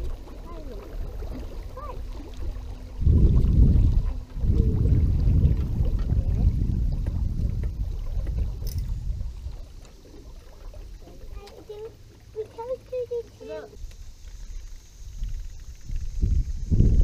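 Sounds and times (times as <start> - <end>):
wind buffeting microphone: 0.0 - 11.8, 13.7 - 17.0.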